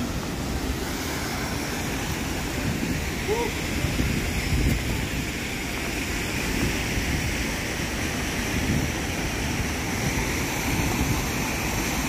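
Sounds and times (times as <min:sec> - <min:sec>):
river water over stones: 0:00.0 - 0:12.0
waterfall rushing: 0:00.0 - 0:12.0.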